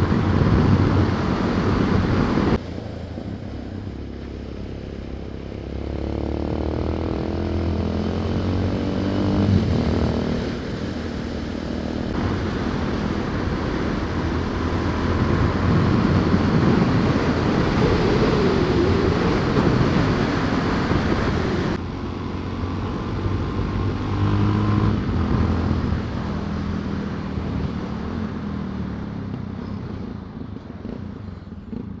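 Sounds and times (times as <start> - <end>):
wind rushing past: 0.0 - 21.8
motorcycle engine: 0.0 - 32.0.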